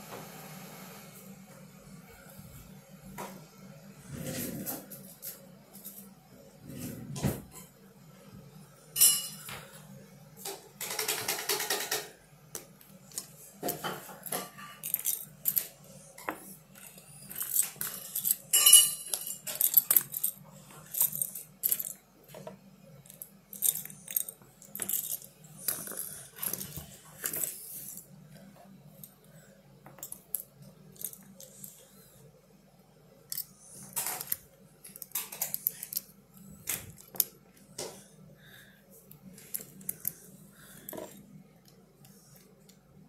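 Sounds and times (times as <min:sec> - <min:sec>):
loose plastic pieces rattling: 0:16.8 - 0:22.0, 0:23.1 - 0:28.0, 0:30.0 - 0:31.8.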